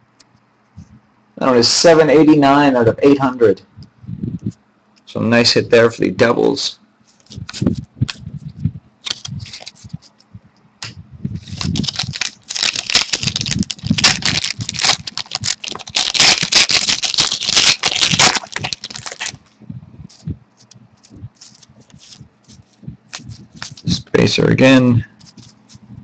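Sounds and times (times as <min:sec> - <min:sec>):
trading cards rustling and crackling: 0:09.0 - 0:10.3, 0:11.4 - 0:19.5, 0:20.1 - 0:24.3, 0:25.1 - 0:25.9.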